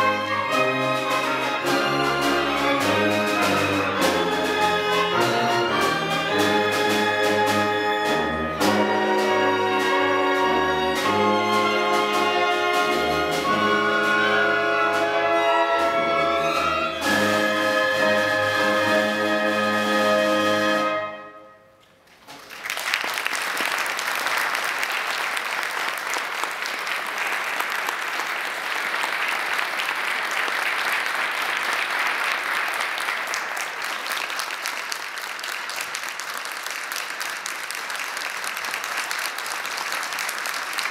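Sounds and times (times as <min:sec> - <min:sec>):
audience applause: 0:22.2 - 0:40.9.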